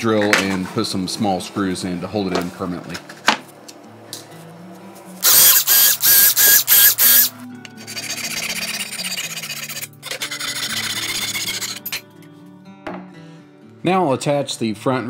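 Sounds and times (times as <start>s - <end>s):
background music: 3.3s - 15.0s
power tool motor whining: 5.2s - 7.3s, 7.9s - 12.0s
hand saw sawing wood: 5.3s - 12.0s.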